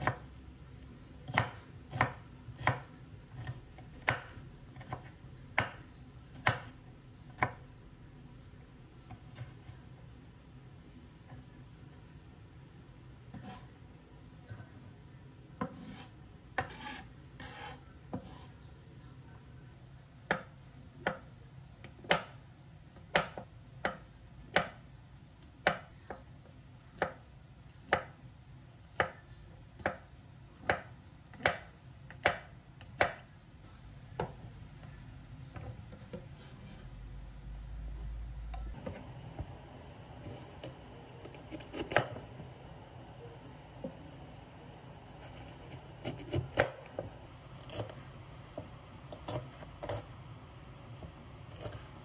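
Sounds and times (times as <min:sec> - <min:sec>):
knife chopping on wooden board: 0:01.2 - 0:06.8, 0:40.2 - 0:42.2, 0:45.2 - 0:50.1
knife scraping cutting board: 0:13.3 - 0:13.8, 0:15.6 - 0:18.6, 0:36.1 - 0:37.0, 0:40.2 - 0:42.2, 0:45.1 - 0:48.1, 0:49.1 - 0:50.2, 0:51.5 - 0:52.0.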